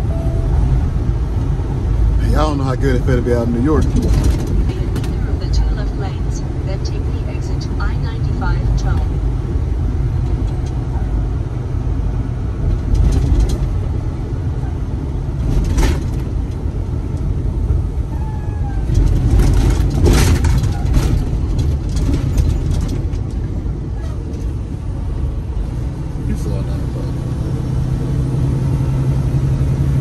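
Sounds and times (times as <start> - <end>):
engine and road rumble: 0.0 - 30.0.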